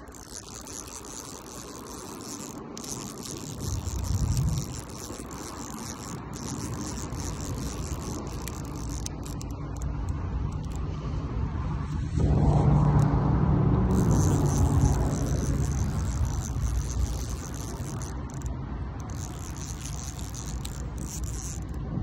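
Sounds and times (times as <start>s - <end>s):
high insect chorus: 0.0s - 9.8s, 13.9s - 18.5s
low rumble: 9.8s - 19.0s.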